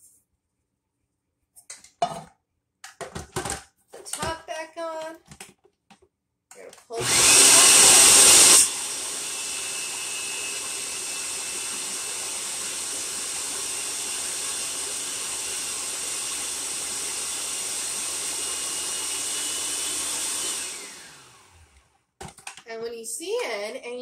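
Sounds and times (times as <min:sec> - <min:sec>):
food processor motor whirring: 0:06.9 - 0:22.5.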